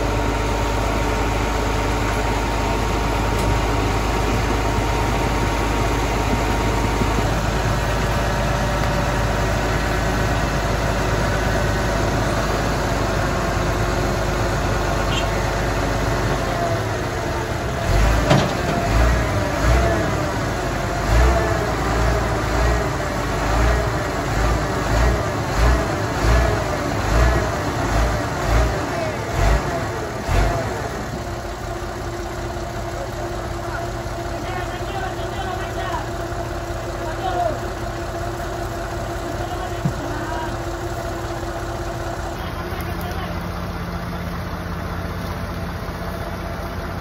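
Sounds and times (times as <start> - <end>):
low rumbling pulses: 0.0 - 15.0
diesel truck engine idling: 0.0 - 47.0.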